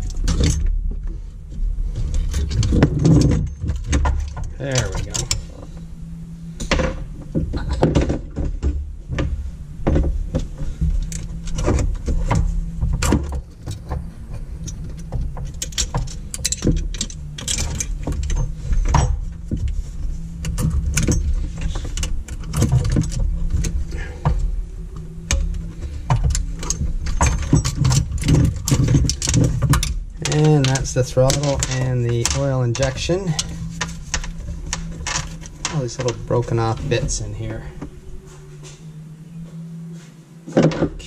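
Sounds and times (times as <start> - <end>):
steady low hum: 0.0 - 41.0
tools and metal fittings rattling: 2.0 - 5.9, 10.4 - 24.5, 25.3 - 37.9.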